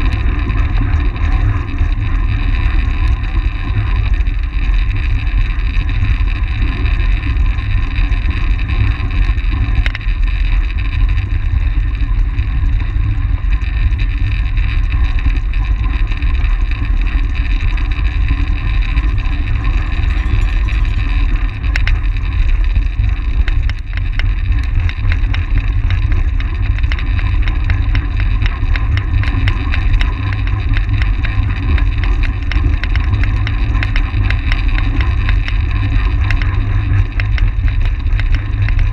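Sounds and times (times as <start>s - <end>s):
bike tyres rolling on track: 0.0s - 38.9s
faint ticks: 8.0s - 11.2s, 13.5s - 38.9s.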